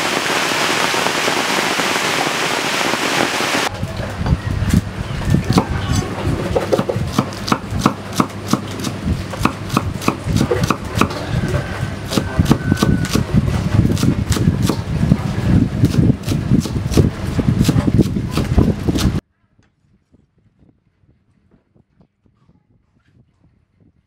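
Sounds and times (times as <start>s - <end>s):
knife chopping on wooden board: 6.6s - 11.2s.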